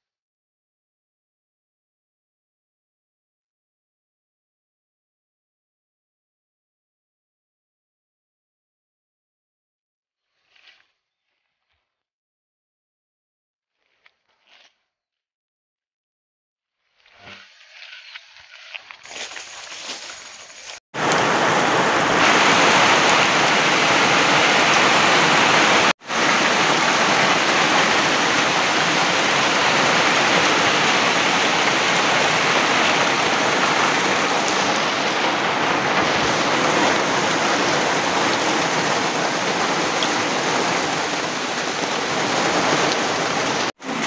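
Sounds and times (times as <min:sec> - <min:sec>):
heavy rain splashing into puddles: 0:19.8 - 0:44.0.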